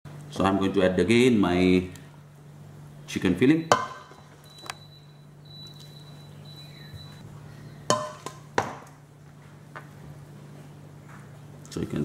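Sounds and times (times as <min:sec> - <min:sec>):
metal spoon knocking on cookware: 0:07.9 - 0:08.7.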